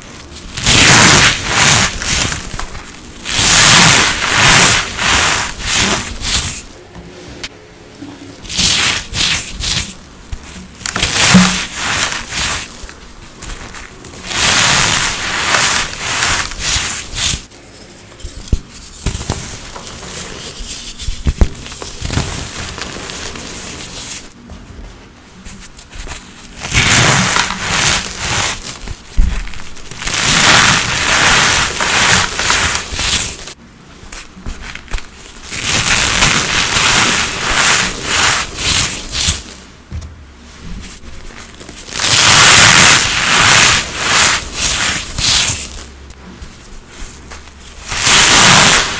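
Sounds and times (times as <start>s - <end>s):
powder chunks crushed and crackling: 0.0s - 6.7s, 8.4s - 17.5s, 26.5s - 33.6s, 34.2s - 39.6s, 41.2s - 46.0s, 47.8s - 48.9s
rubbing and rustling: 0.0s - 6.8s, 8.4s - 48.9s.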